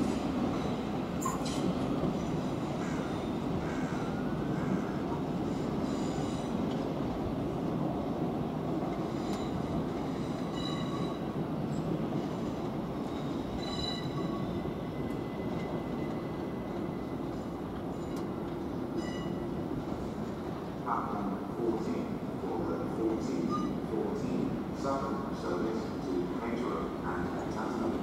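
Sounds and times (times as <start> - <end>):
train rumbling on track: 0.0 - 28.0.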